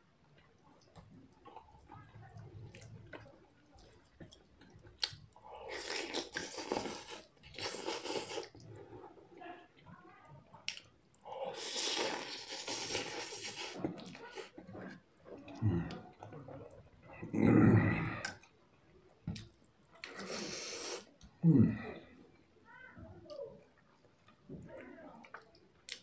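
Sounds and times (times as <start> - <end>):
chewing: 0.1 - 22.6, 23.2 - 26.0
person slurping noodles: 5.6 - 8.6, 11.4 - 14.6, 20.0 - 21.8.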